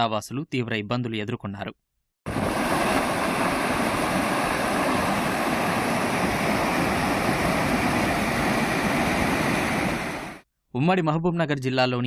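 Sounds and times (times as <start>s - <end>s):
floodwater rushing over causeway: 2.3s - 10.4s.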